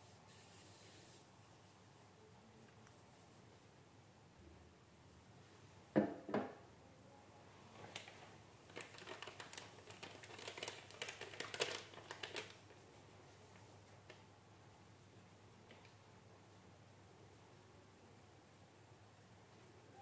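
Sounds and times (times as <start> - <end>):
plastic bag crinkling: 7.8 - 12.8.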